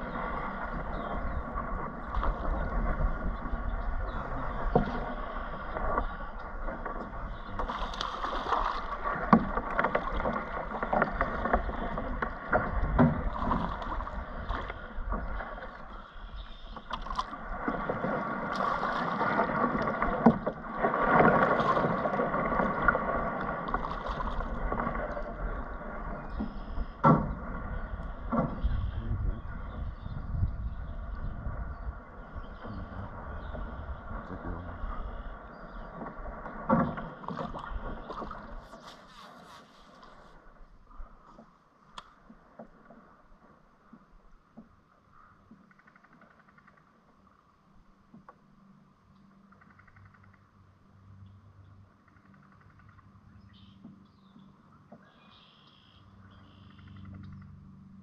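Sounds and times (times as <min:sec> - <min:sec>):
water washing against hull: 0:00.0 - 0:45.0.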